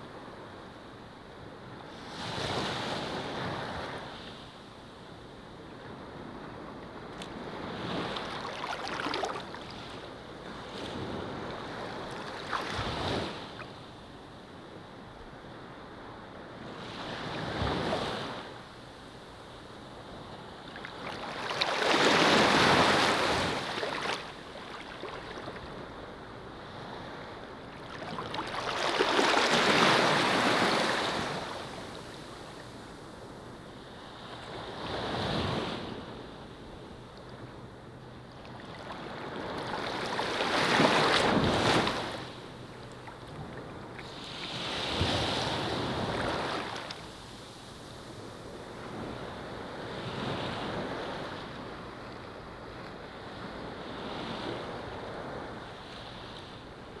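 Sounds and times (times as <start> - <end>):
surf washing onto beach: 27.8 - 32.4.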